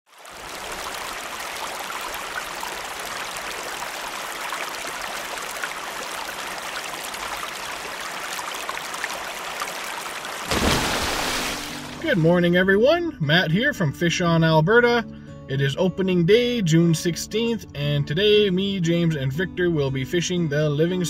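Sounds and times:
river water rushing: 0:00.1 - 0:12.2.

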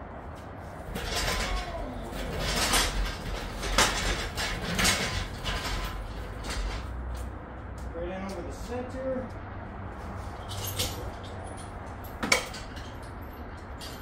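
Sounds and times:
metal creaking: 0:00.3 - 0:07.4.

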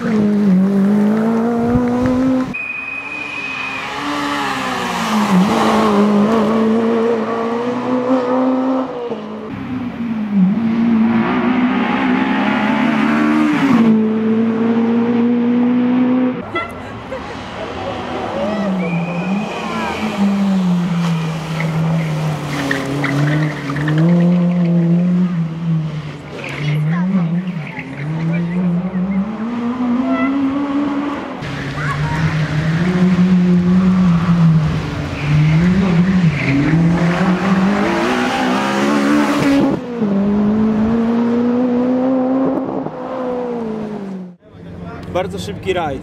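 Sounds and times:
rally car engine revving: 0:00.0 - 0:02.6, 0:03.3 - 0:16.4, 0:17.0 - 0:45.6
tyre squeal: 0:02.6 - 0:05.4.

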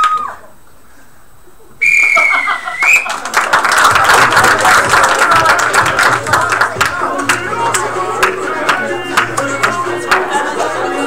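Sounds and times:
whistle blast: 0:01.8 - 0:03.1
audience applause and cheering: 0:02.5 - 0:11.0.

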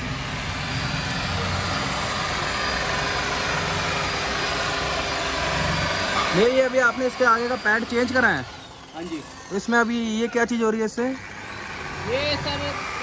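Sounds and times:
electric car polisher running: 0:00.0 - 0:13.0.

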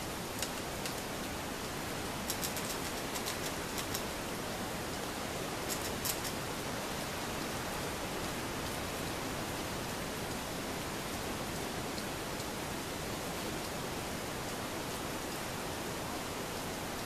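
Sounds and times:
steady hiss: 0:00.0 - 0:17.0
squirrel gnawing crisp clicks: 0:02.2 - 0:04.1, 0:05.7 - 0:06.4.

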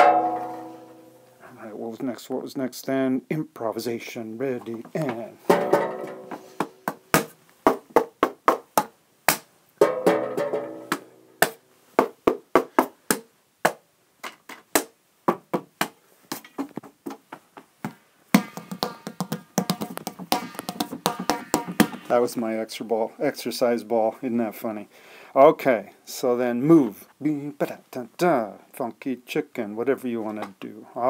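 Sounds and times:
sharp taps and knocks: 0:04.6 - 0:22.2.

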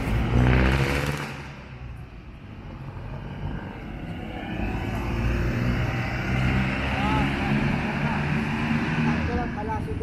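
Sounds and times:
low traffic rumble: 0:00.0 - 0:10.0
vehicle approaching: 0:00.0 - 0:10.0
vehicle engine: 0:00.0 - 0:10.0.

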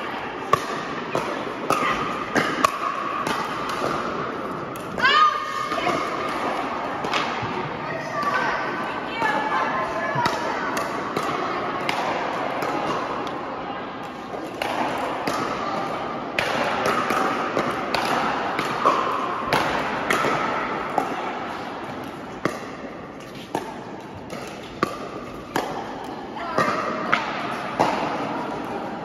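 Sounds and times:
paddles hitting plastic ball: 0:00.5 - 0:05.0, 0:05.7 - 0:07.6, 0:14.0 - 0:28.8.

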